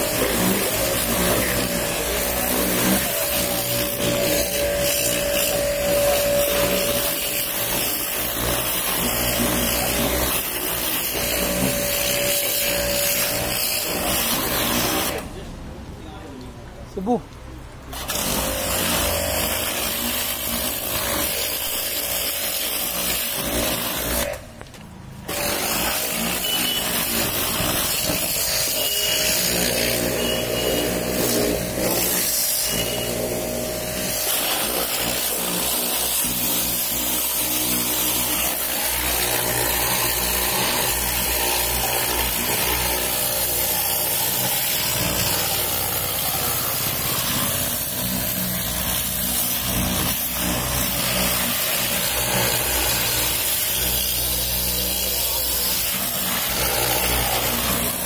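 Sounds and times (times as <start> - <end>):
machine motor humming and hissing: 0.0 - 15.4, 25.3 - 58.0.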